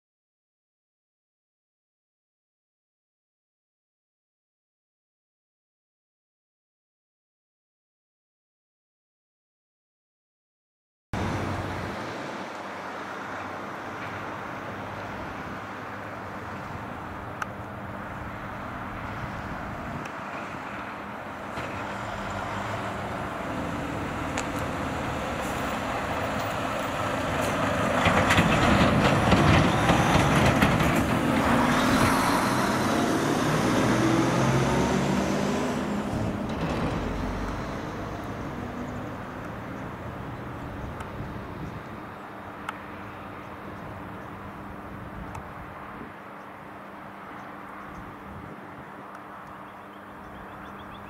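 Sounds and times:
road vehicle passing by: 11.2s - 51.0s.

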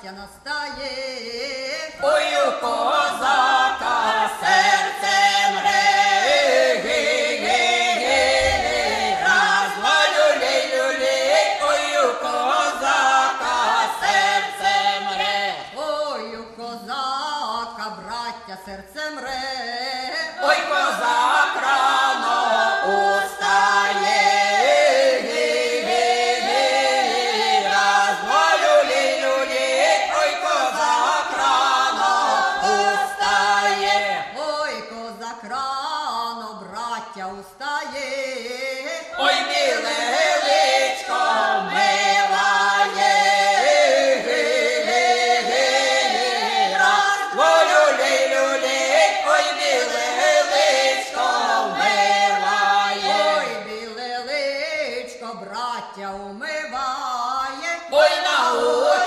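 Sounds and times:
vocal group singing unaccompanied: 0.0s - 59.0s.

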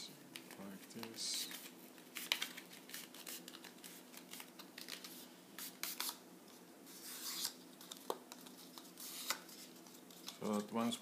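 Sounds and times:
paper rustling and crackling: 0.4s - 6.2s.

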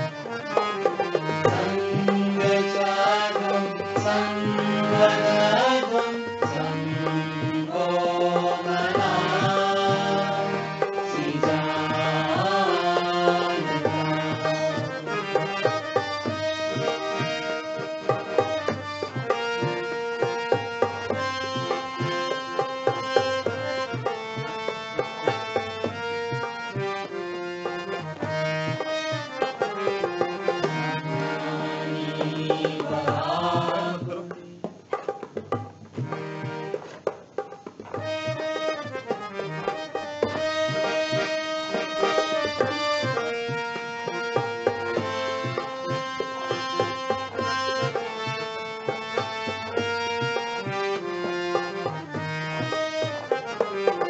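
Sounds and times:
harmonium melody: 0.0s - 54.0s
tabla rhythm: 0.0s - 54.0s
group of voices singing: 1.3s - 15.2s, 30.6s - 34.7s.

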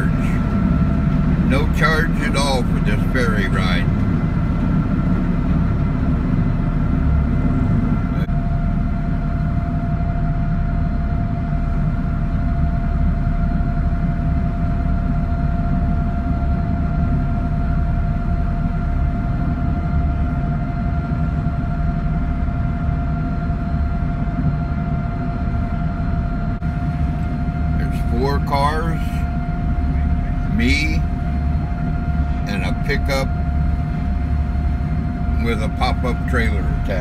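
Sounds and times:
ferry engines droning: 0.0s - 37.0s
steady engine whine: 0.0s - 37.0s.

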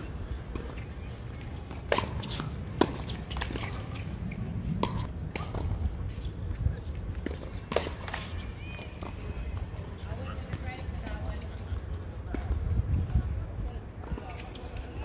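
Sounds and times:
tennis ball struck by rackets: 1.7s - 5.8s.

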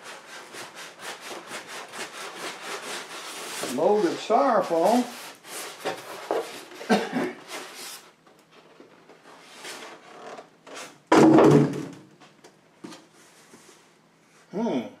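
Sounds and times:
styrofoam packing rubbing and scraping: 0.0s - 8.2s.

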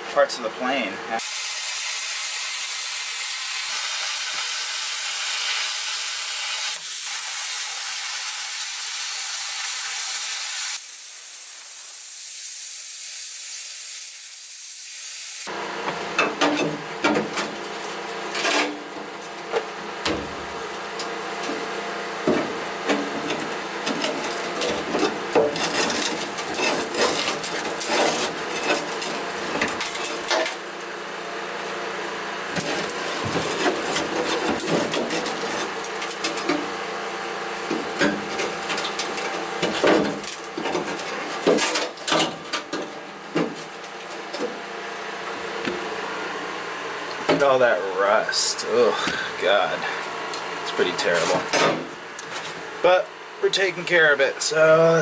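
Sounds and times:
plasma cutter hissing: 1.2s - 15.5s.

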